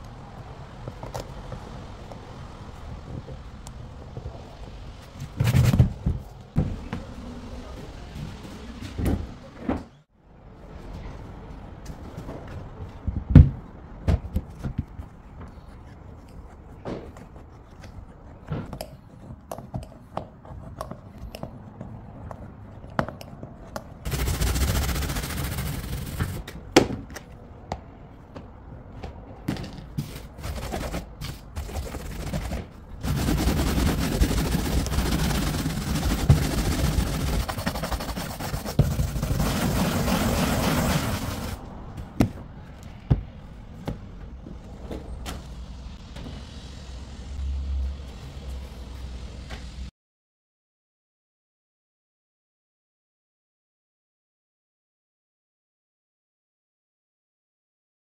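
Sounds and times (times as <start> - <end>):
stiff brush scrubbing glass: 24.1 - 26.4, 30.0 - 41.6.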